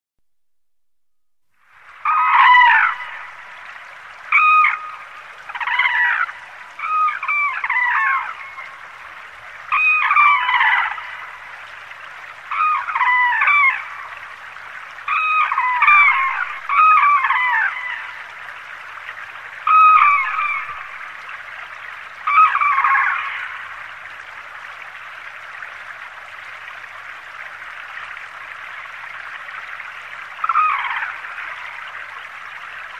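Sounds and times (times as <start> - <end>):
flowing water rushing: 1.5 - 32.9
cranes calling: 2.0 - 3.4, 4.3 - 8.8, 9.7 - 11.3, 12.5 - 14.0, 15.1 - 18.2, 19.6 - 21.2, 22.2 - 23.8, 30.4 - 31.9.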